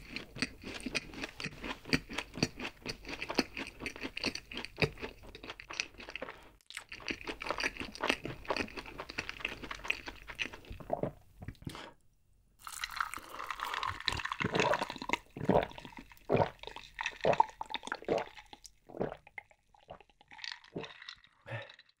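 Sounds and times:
chewing crunchy pastry: 0.0s - 11.6s
gulps of a drink: 13.1s - 22.0s.

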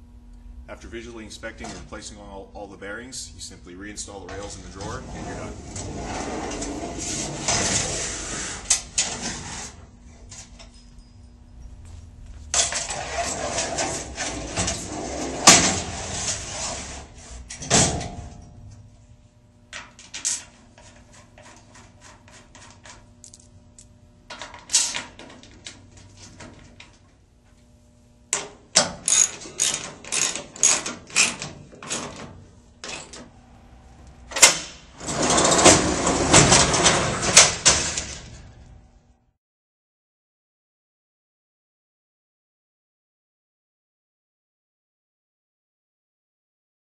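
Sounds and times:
drawer rolling on rails: 4.3s - 11.2s, 12.5s - 18.8s, 34.3s - 38.8s.

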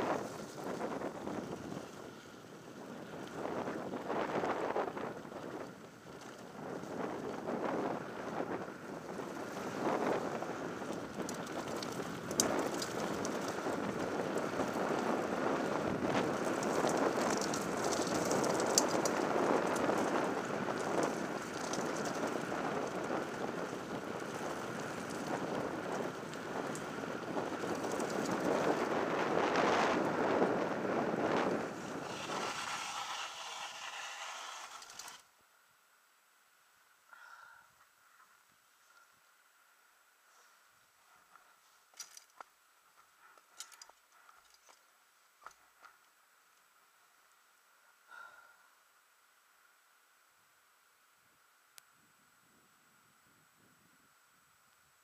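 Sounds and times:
tyres rolling on gravel: 0.0s - 35.2s
wind rush: 0.0s - 35.2s
bike rattling: 0.0s - 35.3s
bike freewheel ticking: 16.4s - 20.2s.

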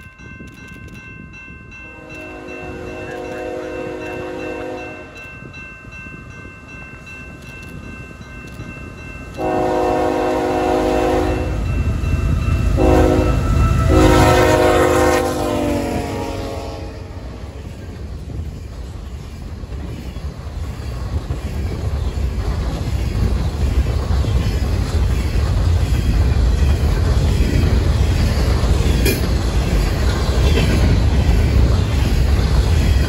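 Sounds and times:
diesel engine and train rumble: 0.0s - 33.0s
wind noise: 0.0s - 33.0s
locomotive air horn blasts: 1.9s - 5.2s, 9.4s - 11.7s, 12.8s - 17.4s.

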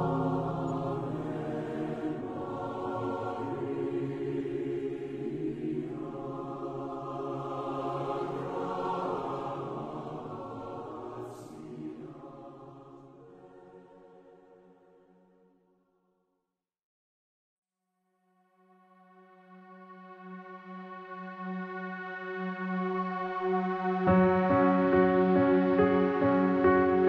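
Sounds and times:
slow intro music with held chords: 0.0s - 4.8s, 19.0s - 27.0s
choir-like voices: 0.0s - 15.2s, 19.3s - 27.0s.

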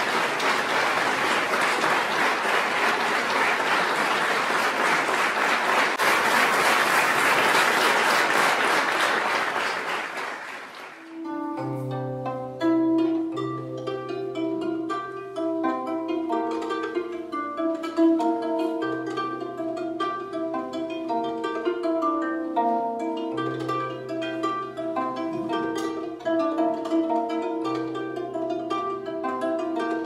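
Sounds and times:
audience applauding: 0.0s - 11.3s
plucked string music: 11.0s - 30.0s.

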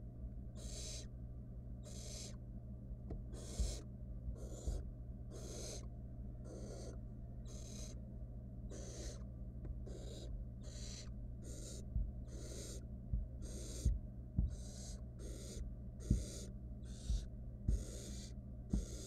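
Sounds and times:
steady low hum: 0.0s - 19.0s
owl chicks hissing calls: 0.6s - 1.1s, 1.8s - 2.4s, 3.3s - 8.0s, 8.7s - 19.0s
soft low thumps: 3.0s - 5.0s, 9.1s - 19.0s.

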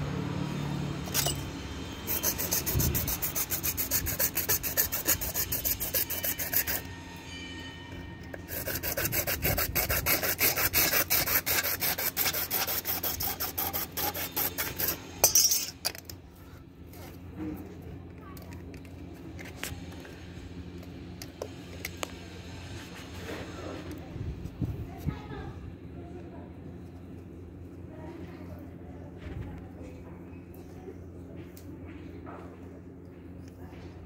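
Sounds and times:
hacksaw sawing plastic pipe: 2.0s - 7.0s, 8.2s - 15.1s.

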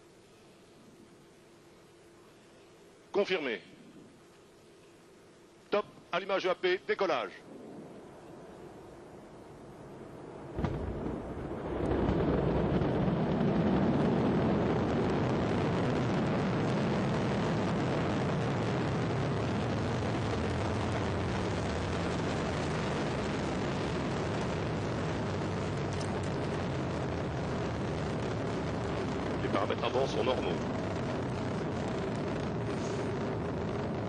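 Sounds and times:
deep rocket rumble: 7.4s - 34.0s.

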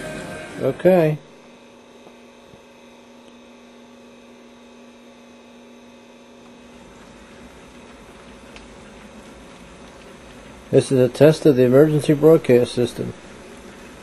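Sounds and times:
faint electrical hum: 0.0s - 14.0s
low hiss: 6.6s - 14.0s.

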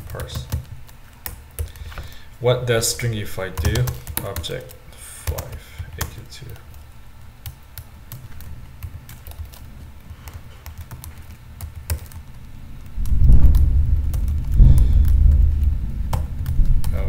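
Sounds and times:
computer keyboard typing: 0.0s - 2.0s, 3.5s - 17.0s
loud low rumble: 13.0s - 17.0s.

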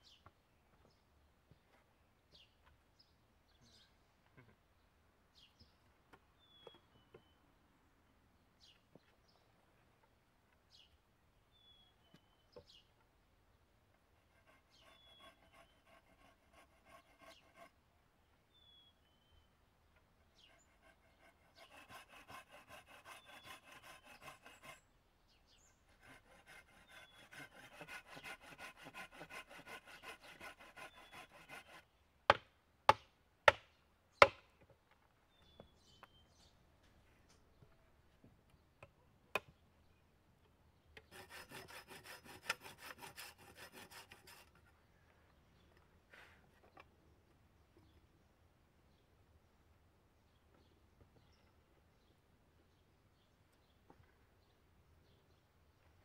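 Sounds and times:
pruning saw cutting wood: 14.2s - 17.7s, 20.3s - 24.8s, 25.9s - 31.9s, 41.0s - 44.6s.

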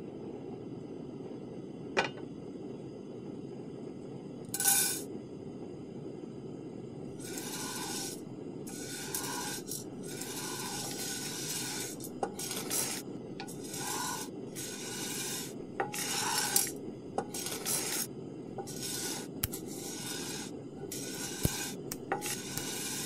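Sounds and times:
faint steady hum: 0.0s - 23.0s
spatula scraping frying pan: 4.6s - 5.0s, 7.2s - 23.0s.

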